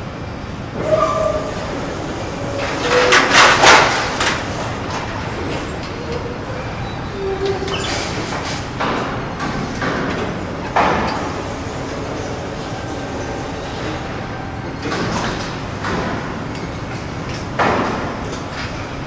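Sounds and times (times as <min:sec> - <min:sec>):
bursts of noise and clatter: 0:02.6 - 0:05.2.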